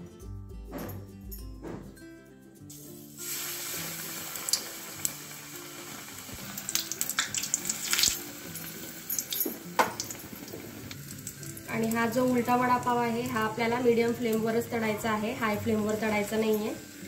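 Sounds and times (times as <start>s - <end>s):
deep-frying sizzle: 2.7s - 17.0s
crackles and pops in oil: 6.3s - 8.2s, 9.2s - 12.0s.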